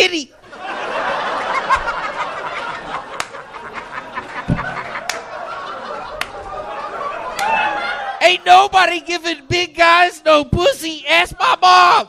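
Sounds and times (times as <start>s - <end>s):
audience laughing: 0.4s - 9.0s
sharp claps or knocks: 3.2s - 3.4s, 4.4s - 5.3s.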